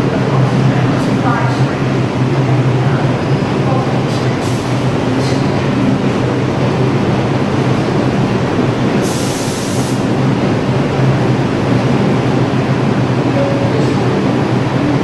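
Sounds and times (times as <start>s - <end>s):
train equipment humming: 0.0s - 15.0s
air release hiss: 9.0s - 10.1s.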